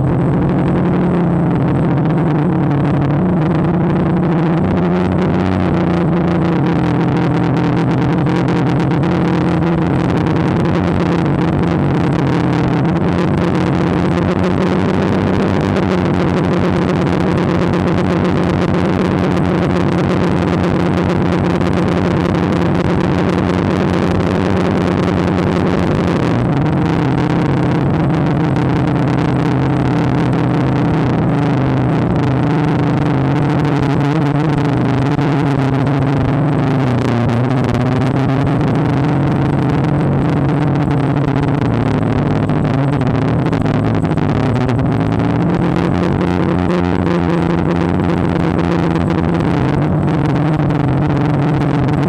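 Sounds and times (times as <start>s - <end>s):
drone motors humming: 0.0s - 52.0s.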